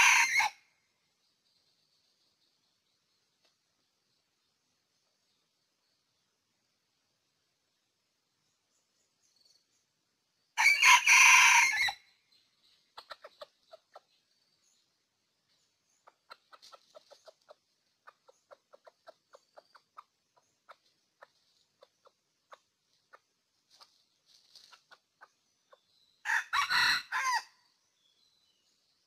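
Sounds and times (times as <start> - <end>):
rooster crowing: 0.0 - 0.6, 10.6 - 12.0, 26.2 - 27.6
soft chicken clucks: 12.3 - 14.9, 15.5 - 26.3.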